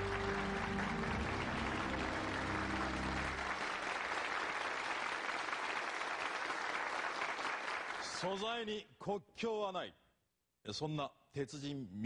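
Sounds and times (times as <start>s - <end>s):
held musical chord: 0.0s - 3.8s
audience applauding: 0.0s - 8.4s.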